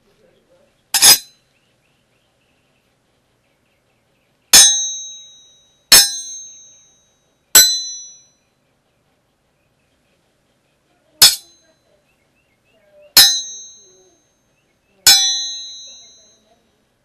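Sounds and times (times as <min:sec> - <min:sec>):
metallic sword clangs: 0:01.0 - 0:01.4, 0:04.6 - 0:05.3, 0:05.9 - 0:06.6, 0:07.6 - 0:08.2, 0:11.2 - 0:11.6, 0:13.2 - 0:13.9, 0:15.0 - 0:16.2.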